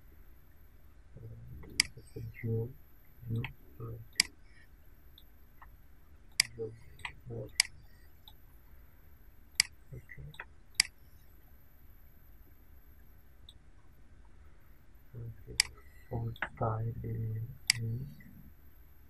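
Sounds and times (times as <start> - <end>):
faint low voice: 1.2 - 4.2, 6.5 - 7.6, 9.9 - 10.4, 15.2 - 18.4
computer mouse clicking: 1.7 - 2.0.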